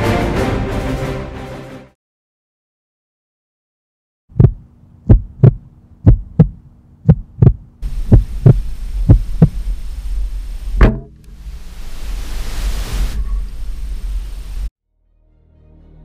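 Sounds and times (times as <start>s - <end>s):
heartbeat thumps: 4.3s - 9.7s
steady rushing noise: 4.4s - 14.7s.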